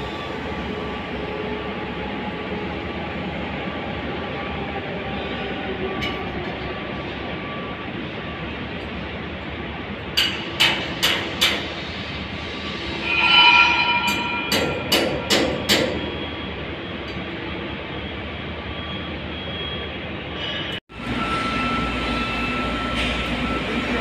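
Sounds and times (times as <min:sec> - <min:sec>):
industrial worksite noise: 0:00.0 - 0:24.0
ringing metallic tone: 0:12.9 - 0:16.5.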